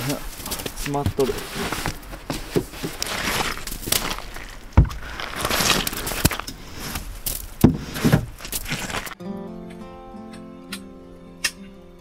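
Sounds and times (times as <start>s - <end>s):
brush scraping wet snow: 0.0s - 9.2s
snow clumps dropping on ground: 0.0s - 9.2s.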